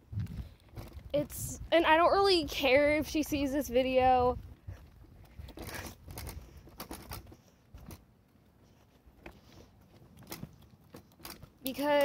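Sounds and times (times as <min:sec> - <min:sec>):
wind rumble on microphone: 0:00.0 - 0:08.0.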